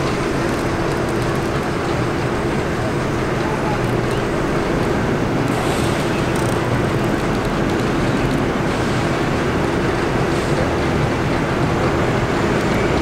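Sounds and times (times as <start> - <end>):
subway train rumble and hum: 0.0 - 13.0.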